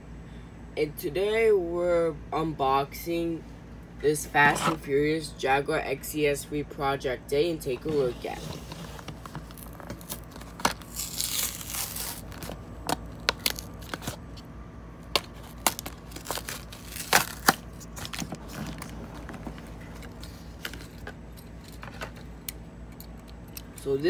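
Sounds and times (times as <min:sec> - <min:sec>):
cardboard ripping: 0:08.0 - 0:14.2, 0:15.1 - 0:21.0
plastic bubble crinkling: 0:09.0 - 0:14.2, 0:15.1 - 0:21.0.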